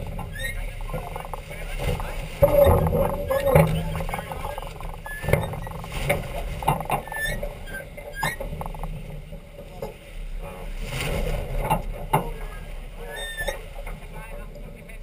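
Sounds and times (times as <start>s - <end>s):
squeaking lines and fittings: 0.0s - 9.9s, 13.0s - 13.7s
rigging knocks and clicks: 0.0s - 10.0s, 11.5s - 12.4s
wind and water rushing: 0.0s - 15.0s.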